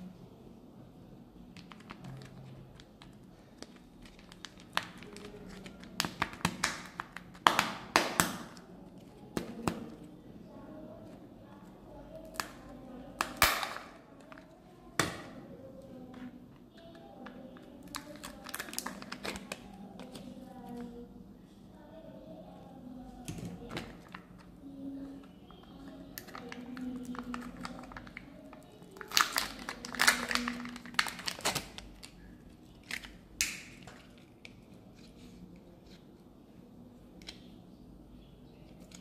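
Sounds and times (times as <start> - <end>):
plastic egg clicking and crinkling: 1.5 - 9.9, 16.8 - 20.9, 25.1 - 34.8.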